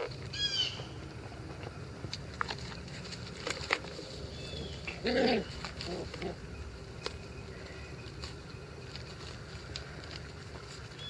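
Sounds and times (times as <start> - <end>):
puppy calling: 4.8 - 6.5.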